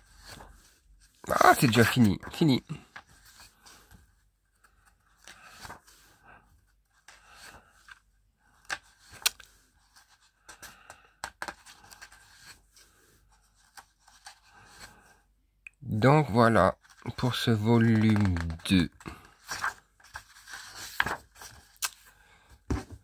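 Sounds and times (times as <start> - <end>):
book pages rustling and flapping: 0.0 - 15.1, 16.4 - 23.0
page snapping: 9.1 - 9.5, 17.8 - 18.8.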